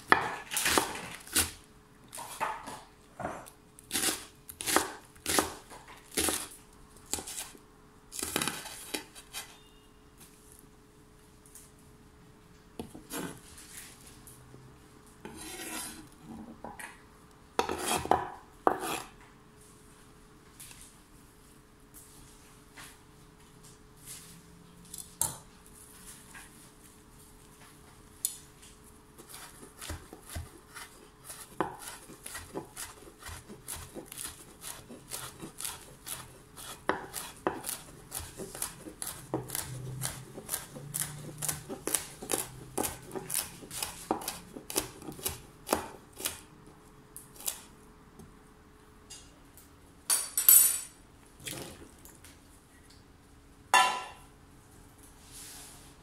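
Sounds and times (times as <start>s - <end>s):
knife chopping on wooden board: 0.1s - 1.5s, 2.2s - 6.5s, 17.6s - 19.0s, 29.2s - 46.4s.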